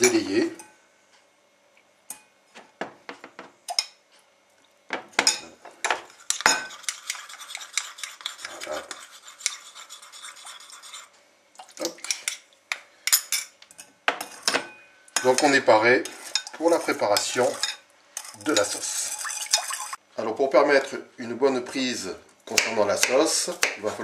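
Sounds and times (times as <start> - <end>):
quick steady stirring: 6.1 - 12.4, 16.0 - 20.0.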